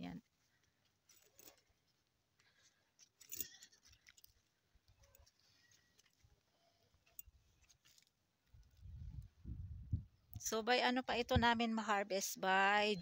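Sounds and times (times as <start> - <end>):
faint clicks and rustles: 0.2 - 9.5.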